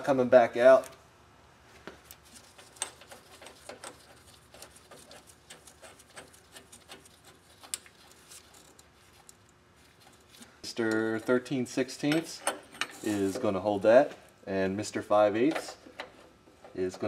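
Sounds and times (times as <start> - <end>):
gloved hands handling metal parts: 1.8 - 14.0.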